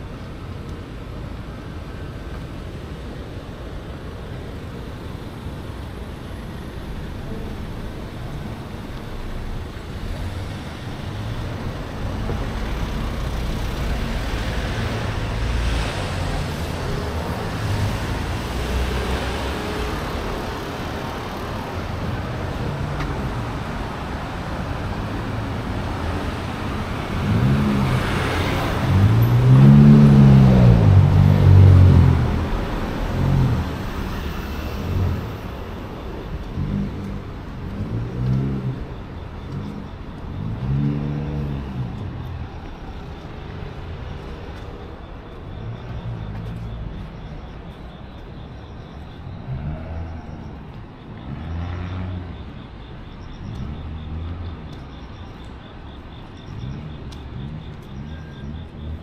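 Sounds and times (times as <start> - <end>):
cars passing by: 0.0 - 59.0
vehicle engine revving: 24.9 - 35.3.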